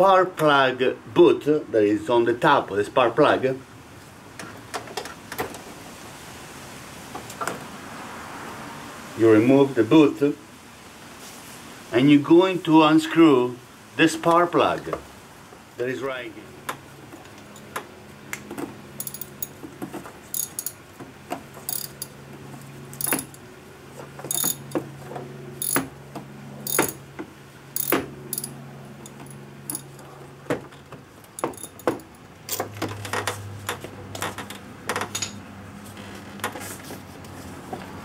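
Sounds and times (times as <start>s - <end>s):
socket wrench metallic clicks: 21.7s - 22.1s, 23.0s - 23.4s, 27.8s - 29.9s.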